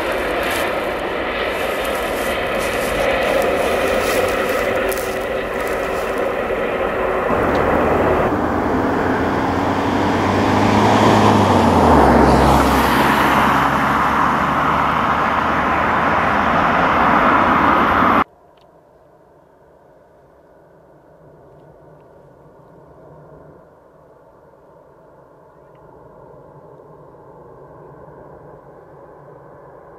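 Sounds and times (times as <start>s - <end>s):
jet engines at takeoff power: 0.0s - 18.3s.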